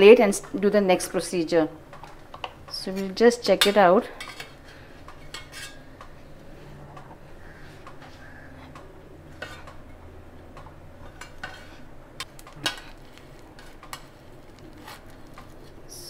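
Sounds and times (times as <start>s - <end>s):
metal spatula scraping steamer plate: 4.2s - 5.9s, 9.3s - 9.7s, 11.0s - 11.9s.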